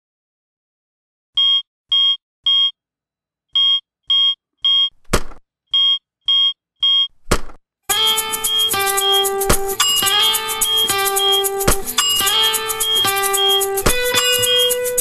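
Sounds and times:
alarm clock beeping: 1.4 - 2.7, 3.6 - 4.9, 5.7 - 7.1, 8.0 - 14.8.

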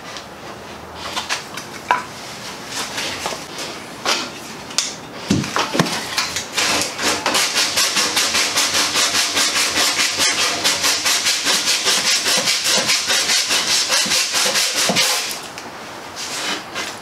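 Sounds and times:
sandpaper rasping on wood: 6.6 - 15.4, 16.2 - 17.0.

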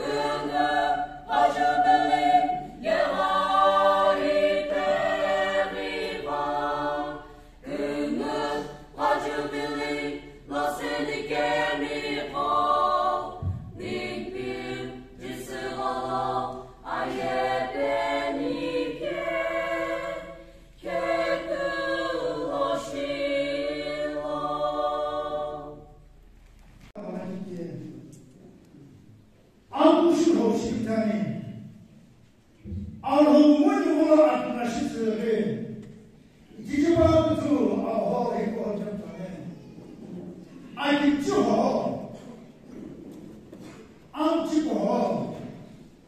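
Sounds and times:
mixed choir singing: 0.0 - 26.2.

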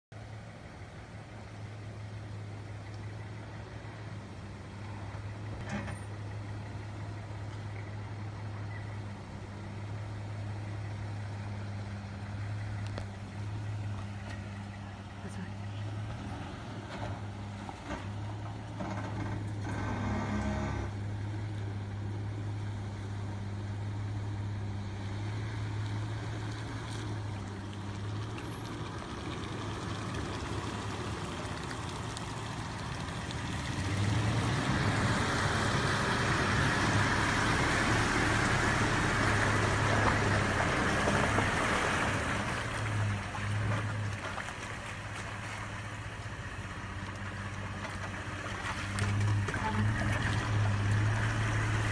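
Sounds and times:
engine running at low revs: 0.1 - 51.9
water splashing: 21.0 - 51.9.

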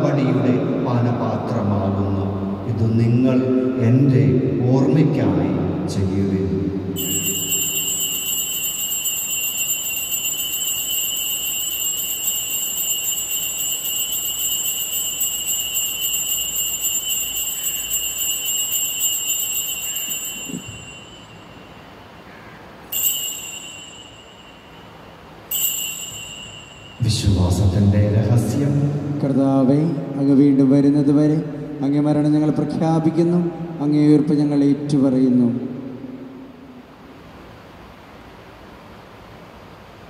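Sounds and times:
altar bells ringing: 7.0 - 29.1.

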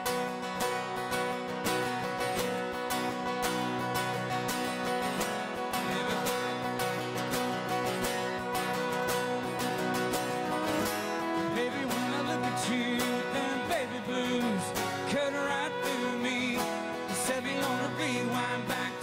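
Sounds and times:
fiddle melody: 0.0 - 19.0
strummed acoustic guitars: 0.0 - 19.0.

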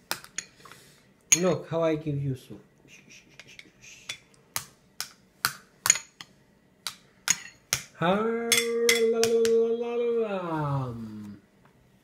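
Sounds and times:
spoon clinking on metal bowl: 8.5 - 9.3.

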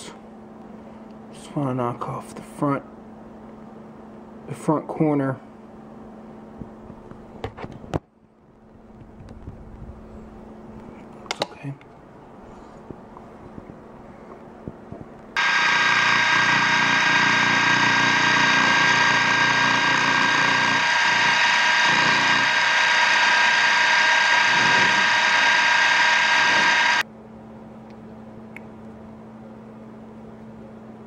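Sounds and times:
milling machine cutting metal: 15.4 - 27.0.

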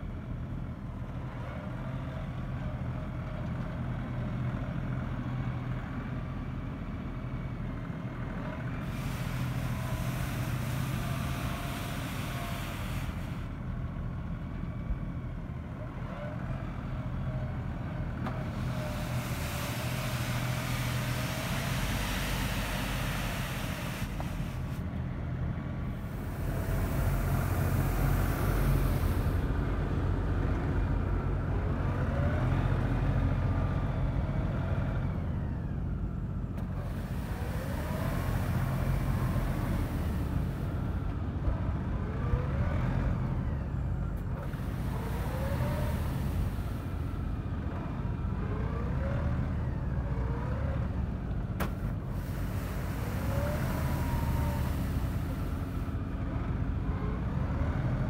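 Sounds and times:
tractor diesel engine running: 0.0 - 58.0
short rising whines: 26.0 - 29.6.

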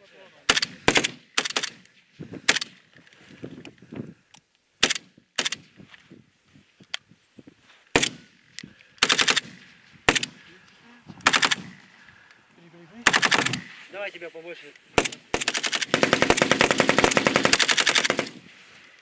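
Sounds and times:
rifle gunshots and bursts: 0.5 - 1.8, 4.8 - 5.8, 7.9 - 8.4, 9.0 - 10.4, 11.2 - 12.0, 13.0 - 13.8, 15.0 - 18.5.

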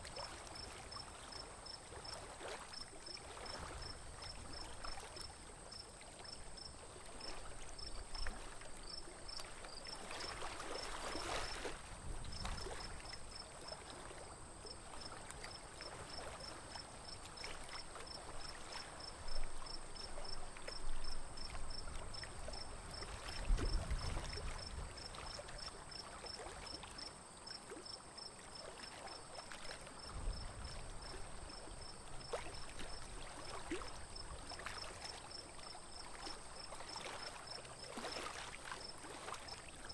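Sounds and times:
water lapping against boat: 0.0 - 39.9
feet splashing in water: 36.2 - 39.5.

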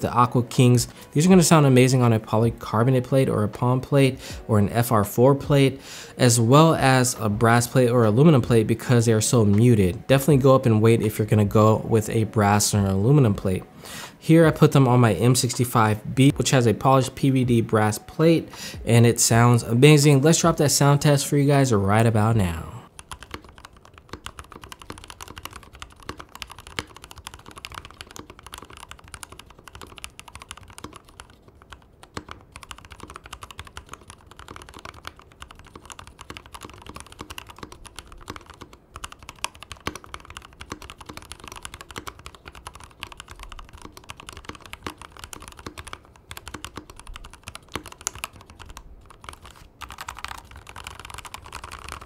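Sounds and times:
typing on mechanical keyboard: 0.0 - 5.5, 22.5 - 52.0.

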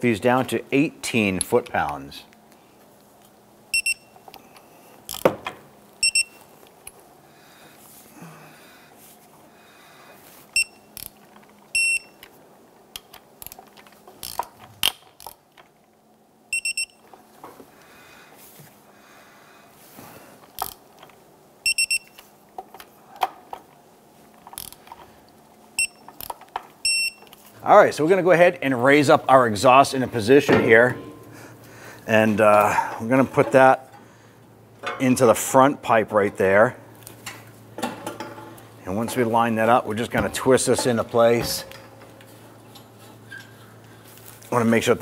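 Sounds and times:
torque wrench beeps: 3.7 - 4.2, 6.0 - 6.4, 10.6 - 10.9, 11.8 - 12.2, 16.5 - 17.1, 21.6 - 22.2, 25.8 - 26.1, 26.8 - 27.3
ratchet clicks: 14.2 - 15.4, 20.6 - 20.8, 24.5 - 25.0.

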